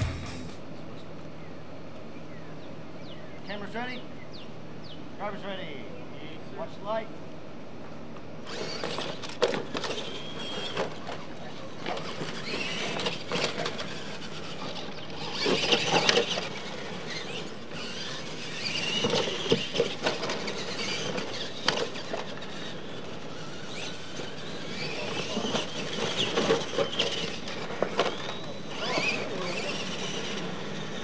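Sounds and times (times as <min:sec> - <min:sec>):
tyres on dirt: 0:08.1 - 0:31.0
electric motor whine: 0:08.4 - 0:31.0
toy trucks landing knocks: 0:08.5 - 0:22.8.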